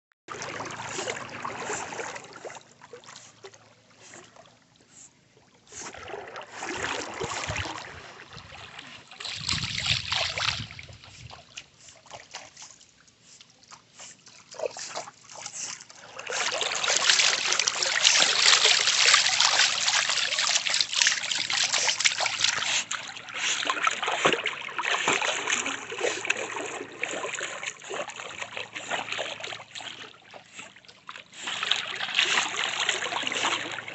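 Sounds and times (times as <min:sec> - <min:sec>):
pool water splashing: 0:00.3 - 0:33.9.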